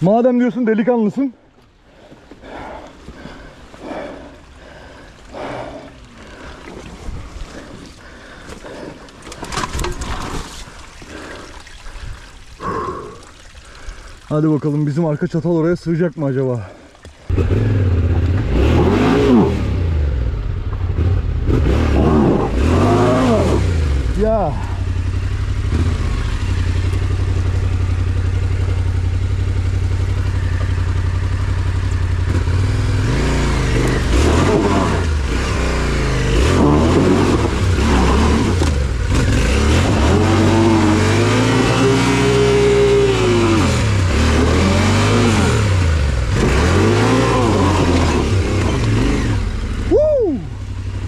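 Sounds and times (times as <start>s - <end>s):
motorcycle engine revving: 17.3s - 51.0s.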